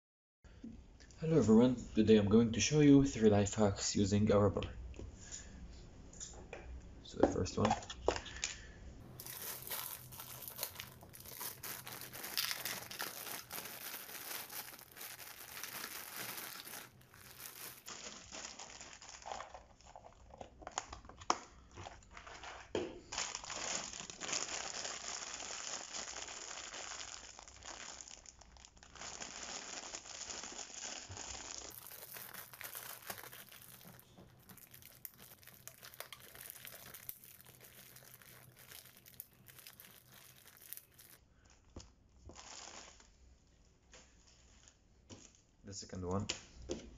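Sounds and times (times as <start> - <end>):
plastic bag crinkling: 9.1 - 41.7, 42.3 - 43.1.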